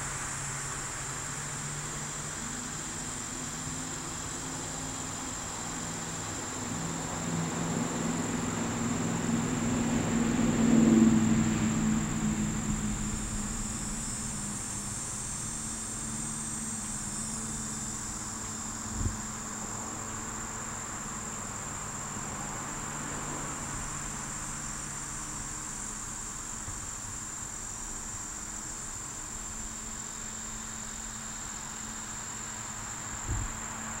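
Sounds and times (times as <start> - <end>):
insects chirring: 0.0 - 34.0
low hum: 6.6 - 20.2.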